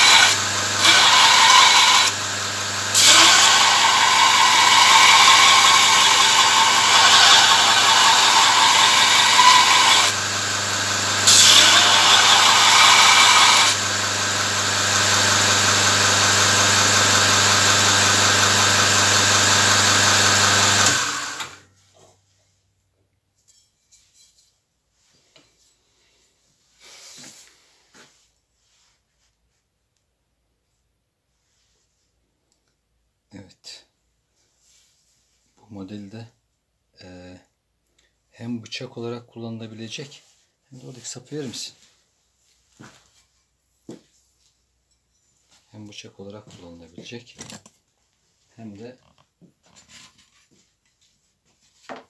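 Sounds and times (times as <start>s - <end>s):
belt grinder grinding metal: 0.0s - 21.6s.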